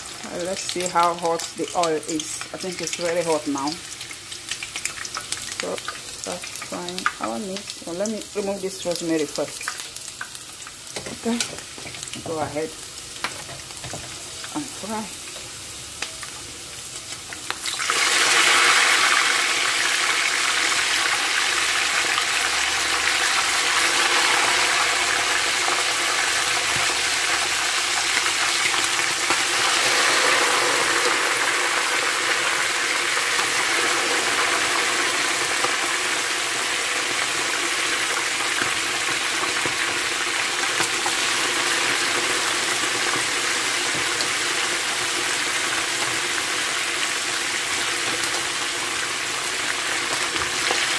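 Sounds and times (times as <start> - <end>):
meat sizzling in hot oil: 0.0 - 50.9.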